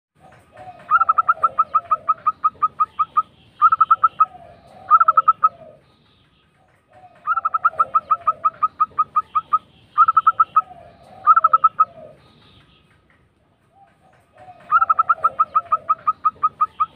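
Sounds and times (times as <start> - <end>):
doves cooing: 0.2 - 16.9.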